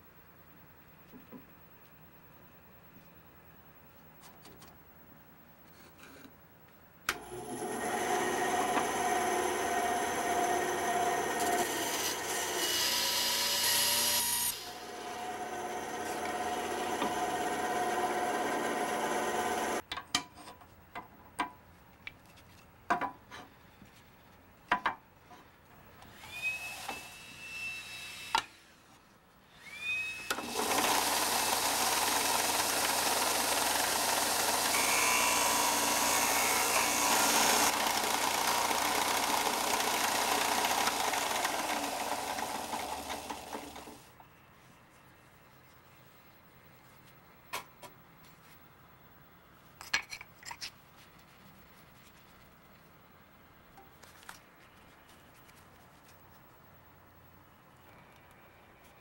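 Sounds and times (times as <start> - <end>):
bandsaw cutting wood: 7.2 - 19.8, 29.6 - 44.0
belt and disc sander running: 14.6 - 19.8, 30.3 - 44.0.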